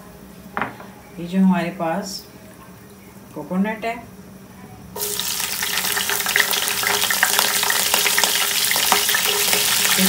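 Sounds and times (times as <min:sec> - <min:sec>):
hot oil sizzling and spitting: 0:05.0 - 0:10.0.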